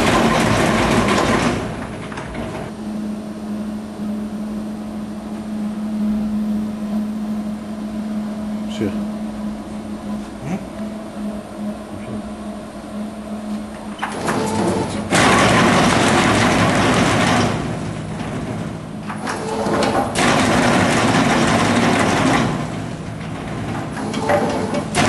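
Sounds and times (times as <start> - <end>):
machine rattle: 0.0 - 2.8, 13.8 - 25.0
machine low hum: 0.0 - 25.0.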